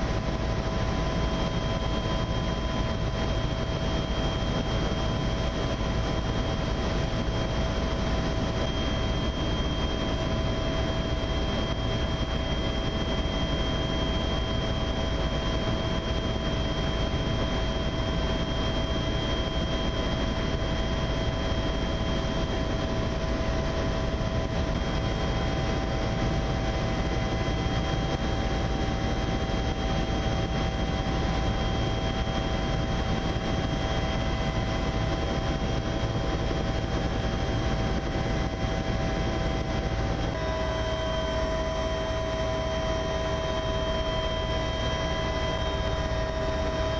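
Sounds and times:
helicopter cabin drone: 0.0s - 46.9s
high whine: 39.6s - 46.9s.

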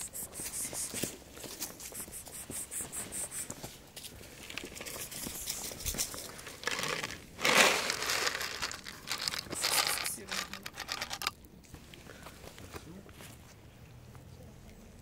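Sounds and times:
cat kibble pouring onto pavement: 4.5s - 11.4s
kibble rattling in plastic jug: 5.8s - 11.4s.

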